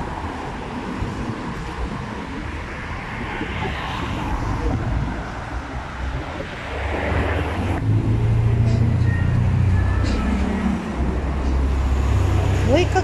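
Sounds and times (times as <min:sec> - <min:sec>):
cars driving past: 0:00.0 - 0:13.0
low engine rumble: 0:04.3 - 0:13.0.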